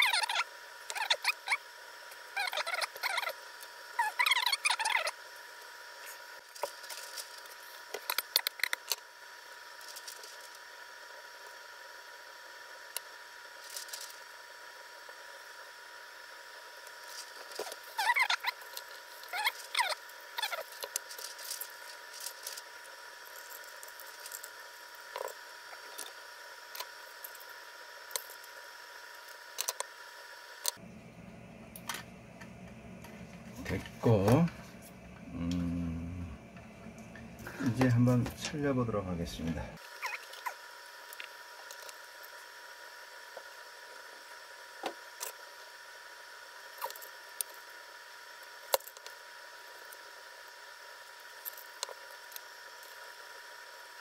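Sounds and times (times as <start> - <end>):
steady hum: 0.0 - 54.0
short chirping squeaks: 39.9 - 40.6.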